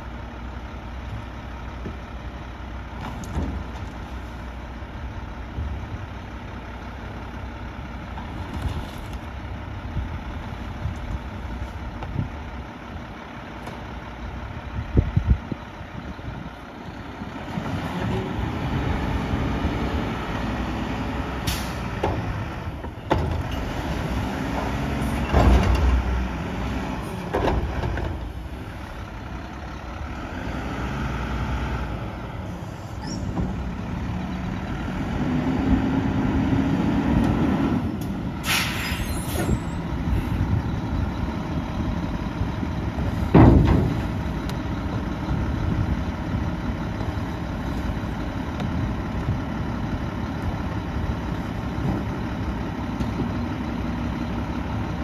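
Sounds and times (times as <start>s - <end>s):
diesel truck engine running: 0.0s - 55.0s
air brake hiss: 21.4s - 21.9s, 38.4s - 39.8s
thump: 43.3s - 44.2s.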